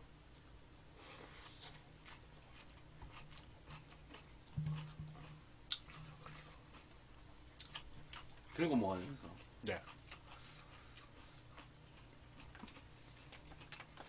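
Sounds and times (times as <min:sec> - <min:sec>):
chewing crispy food: 0:01.4 - 0:14.0
thump with low hum: 0:04.5 - 0:06.0.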